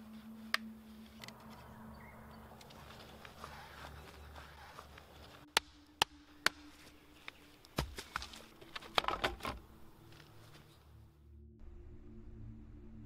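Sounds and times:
footsteps through dry leaves: 2.5s - 5.5s.

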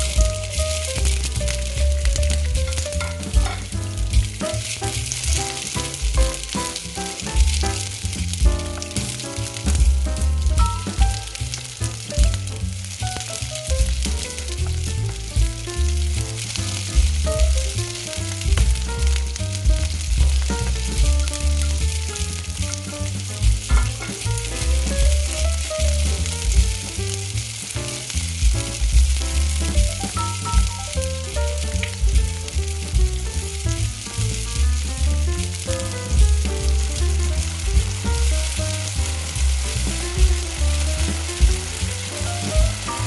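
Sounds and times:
background music with bass: 0.0s - 43.0s
vegetables sizzling in oil: 0.0s - 43.0s
wooden spatula stirring: 0.4s - 9.2s.

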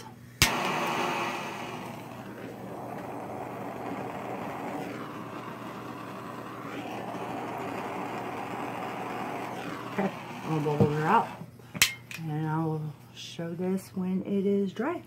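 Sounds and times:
gas torch lighting click: 0.0s - 2.1s
torch flame hissing: 0.0s - 11.6s.

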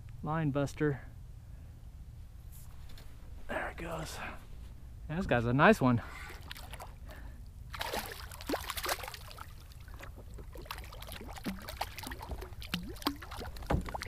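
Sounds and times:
water splashing and gurgling: 6.2s - 14.0s.

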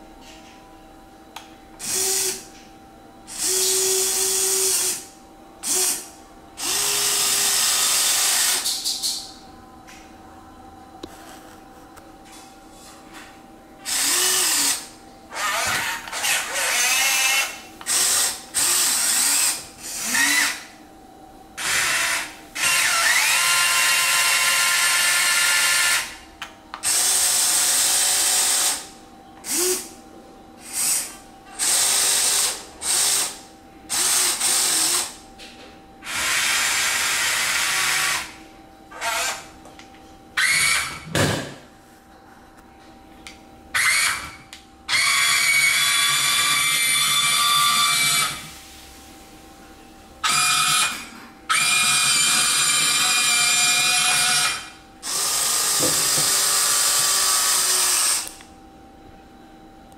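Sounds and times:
electric motors whirring: 1.8s - 2.6s, 3.3s - 9.3s, 13.2s - 20.8s, 21.6s - 26.2s, 26.8s - 30.0s, 30.6s - 35.2s, 36.0s - 39.5s, 40.4s - 41.1s, 43.7s - 48.5s, 50.2s - 58.4s.

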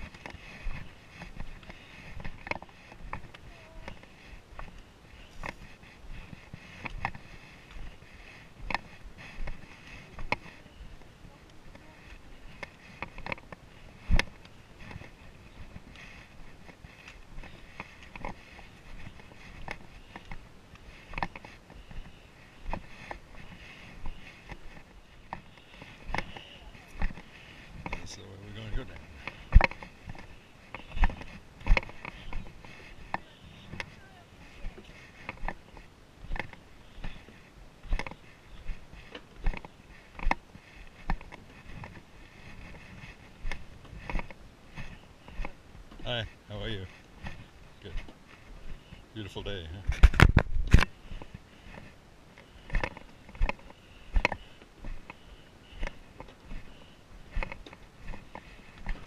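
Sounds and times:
footsteps on dirt trail: 0.0s - 59.0s
camera jostling: 49.9s - 51.9s.

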